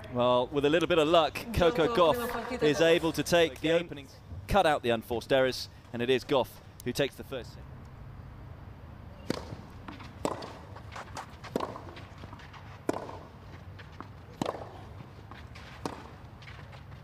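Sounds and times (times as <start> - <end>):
racket striking ball: 9.2 - 13.4, 14.0 - 16.2.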